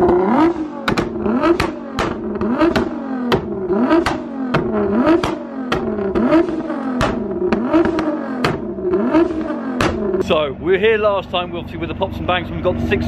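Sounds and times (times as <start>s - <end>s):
exhaust pops and bangs: 0.0s - 11.4s
car engine revving in blips: 0.0s - 13.0s.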